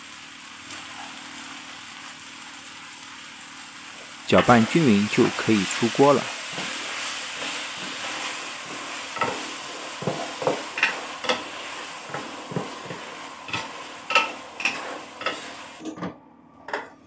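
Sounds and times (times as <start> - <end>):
food sizzling in a wok: 0.0 - 15.9
spatula scraping a pan: 6.4 - 15.6.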